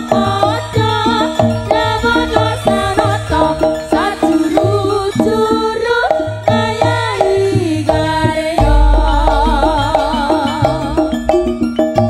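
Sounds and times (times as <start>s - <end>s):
wavering pitch-sliding melody: 0.0s - 7.3s, 8.6s - 12.0s
hand drum pattern: 0.0s - 12.0s
deep bass boom: 1.5s - 4.8s, 8.6s - 12.0s.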